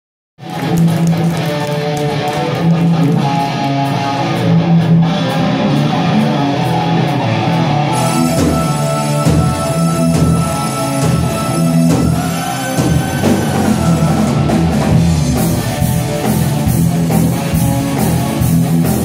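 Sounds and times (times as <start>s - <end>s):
electric guitars: 0.4s - 19.0s
live hard rock band playing: 0.4s - 19.0s
keyboard holding notes: 7.9s - 16.8s.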